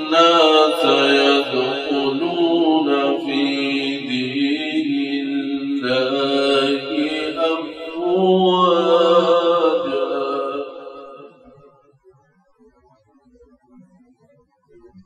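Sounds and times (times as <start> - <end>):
man chanting melodically: 0.0 - 11.5.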